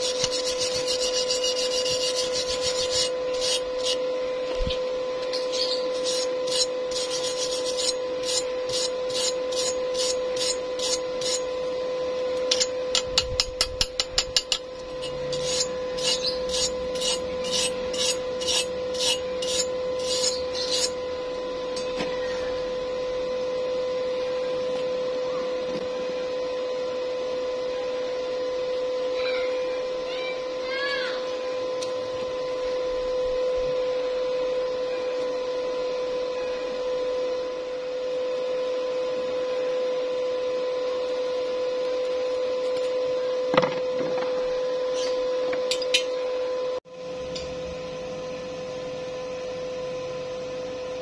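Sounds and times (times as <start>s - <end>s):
wire brush scrubbing metal: 0.0s - 11.6s, 12.4s - 21.1s
steady hum: 0.0s - 51.0s.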